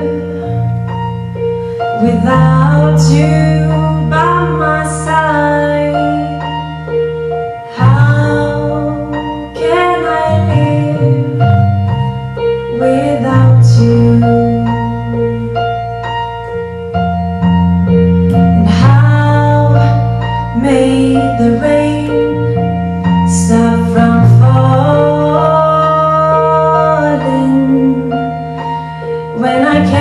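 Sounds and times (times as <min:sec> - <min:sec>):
woman singing: 0:02.0 - 0:06.7, 0:07.7 - 0:11.5, 0:12.7 - 0:15.7, 0:18.4 - 0:22.6, 0:23.2 - 0:28.3, 0:29.3 - 0:30.0.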